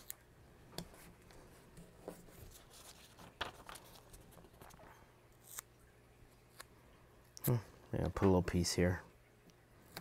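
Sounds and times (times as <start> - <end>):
paper rustling: 1.0 - 5.6.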